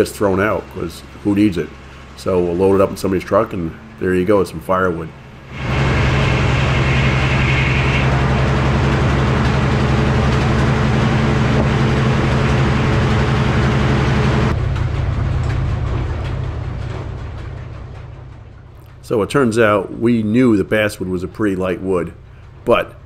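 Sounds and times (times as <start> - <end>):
engine drone: 0.0 - 23.0
saw hissing: 5.5 - 9.0.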